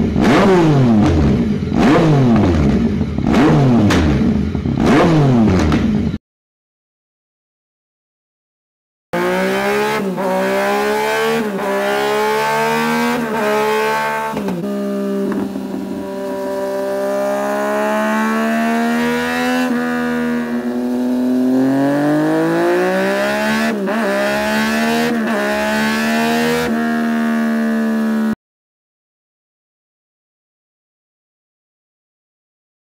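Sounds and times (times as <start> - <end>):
motorcycle engine revving: 0.0 - 6.2, 9.2 - 28.4.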